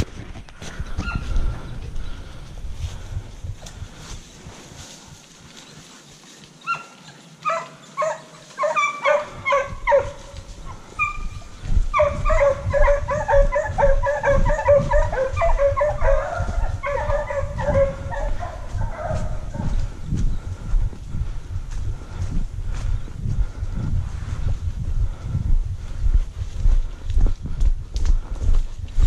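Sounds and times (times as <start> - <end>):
hounds baying: 6.6 - 19.9.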